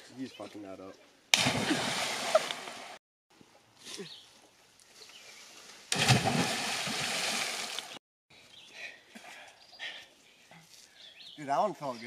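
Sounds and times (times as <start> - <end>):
people splashing into water: 1.4 - 3.0, 5.9 - 8.0.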